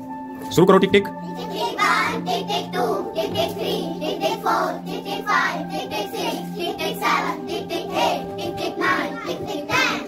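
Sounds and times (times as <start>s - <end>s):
children chanting together: 1.4s - 10.0s.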